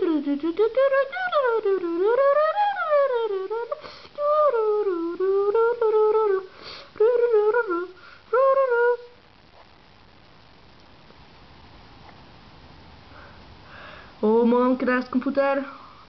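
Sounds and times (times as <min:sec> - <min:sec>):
person humming a tune: 0:00.0 - 0:09.1.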